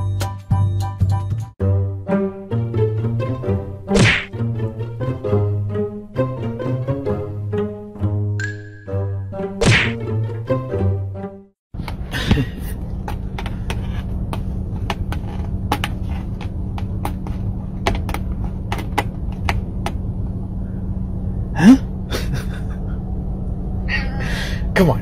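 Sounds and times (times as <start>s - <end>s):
car cabin hum and rumble: 11.8s - 25.0s.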